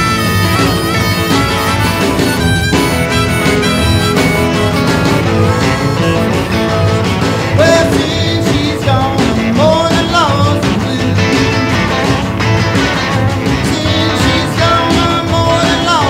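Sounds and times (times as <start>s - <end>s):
person singing: 0.0s - 12.3s, 13.3s - 16.0s
rockabilly band with guitar: 0.0s - 16.0s.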